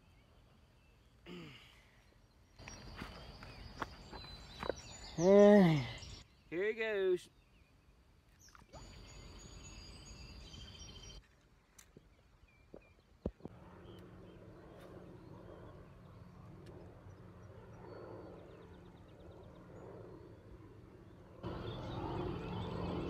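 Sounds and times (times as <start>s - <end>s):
low hum: 13.3s - 23.0s.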